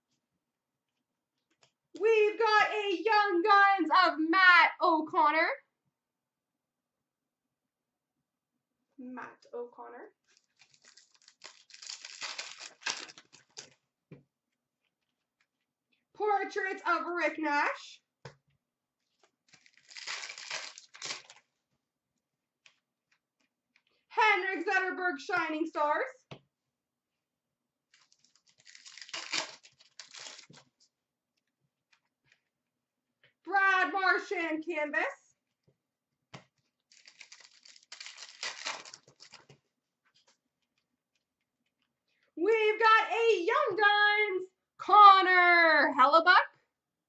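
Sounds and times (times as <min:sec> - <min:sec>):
wrapper tearing and crinkling: 0:10.2 - 0:13.8, 0:19.5 - 0:21.5, 0:27.9 - 0:30.7, 0:36.9 - 0:39.4.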